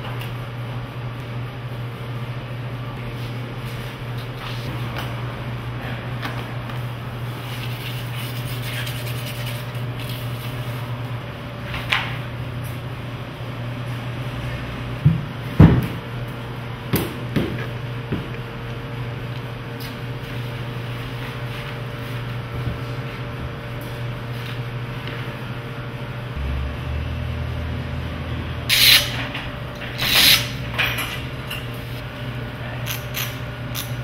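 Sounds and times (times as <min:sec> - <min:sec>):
low hum: 0:26.0 - 0:33.5.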